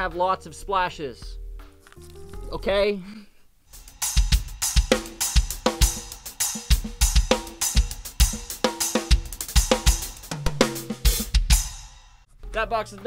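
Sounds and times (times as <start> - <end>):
kick drum: 3.9 - 11.8.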